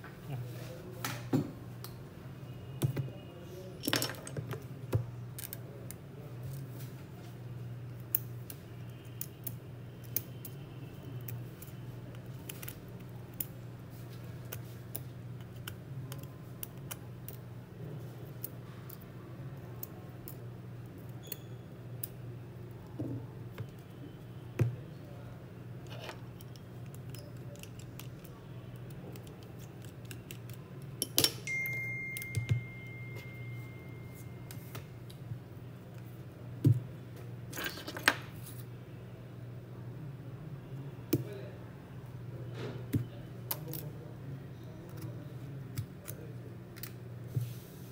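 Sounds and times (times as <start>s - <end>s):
tools clicking and tapping: 29.1s - 33.4s
thin high tone: 31.4s - 34.8s.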